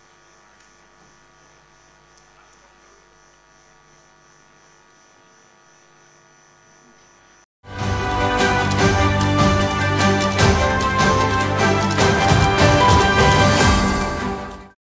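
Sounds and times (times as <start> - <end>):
electrical mains hum: 0.0 - 7.5
loud music: 7.7 - 14.7.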